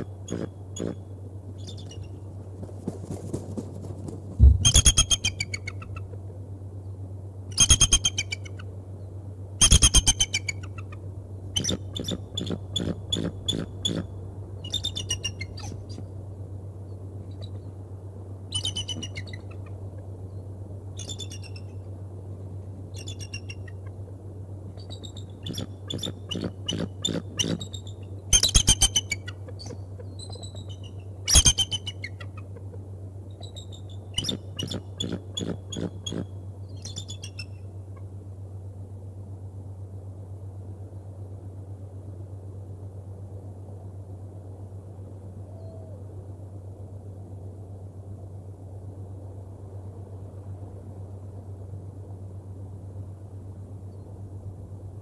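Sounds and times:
eagle chittering calls: 0:00.2 - 0:02.2, 0:04.4 - 0:06.1, 0:07.5 - 0:08.7, 0:09.6 - 0:11.0, 0:11.6 - 0:16.0, 0:18.5 - 0:19.7, 0:21.0 - 0:21.8, 0:22.9 - 0:24.0, 0:24.8 - 0:32.5, 0:33.3 - 0:37.7.

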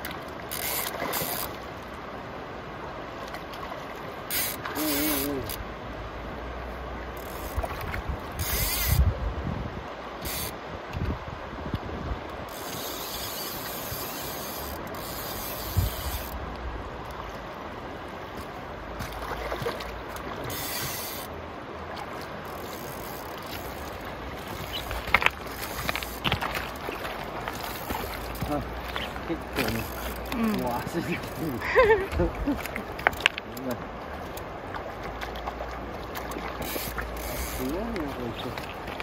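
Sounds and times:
river rushing: 0:00.0 - 0:39.0
fly reel click buzzing: 0:04.3 - 0:05.6, 0:08.4 - 0:09.0, 0:10.2 - 0:10.6, 0:12.5 - 0:16.4, 0:36.7 - 0:37.7.

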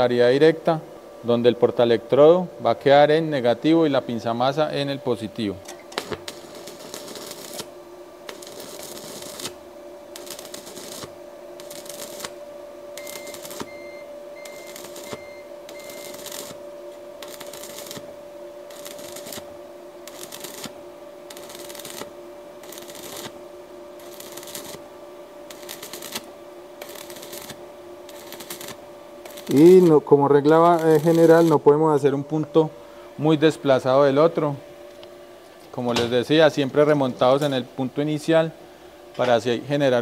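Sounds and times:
steady hum: 0:00.0 - 0:40.0
welding arc crackling: 0:05.4 - 0:31.8, 0:36.1 - 0:38.2.

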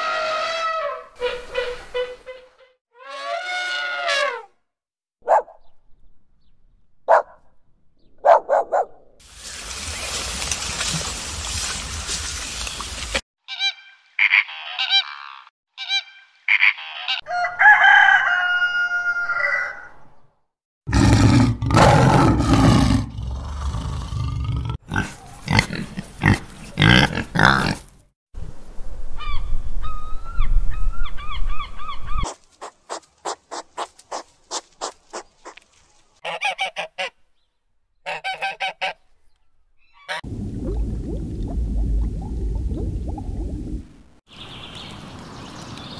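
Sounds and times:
pigs grunting and squealing: 0:20.9 - 0:27.9
duck quacking: 0:36.2 - 0:37.2, 0:38.0 - 0:39.0.

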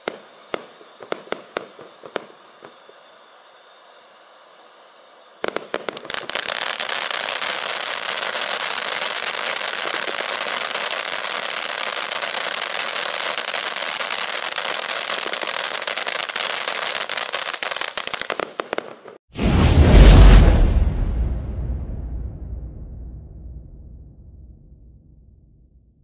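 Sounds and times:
fountain firework crackling hiss: 0:00.0 - 0:20.4.

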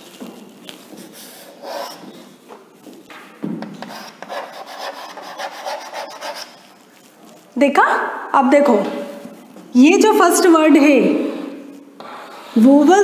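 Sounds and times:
chalk scraping on chalkboard: 0:00.8 - 0:02.2, 0:03.7 - 0:07.5, 0:11.3 - 0:13.0.

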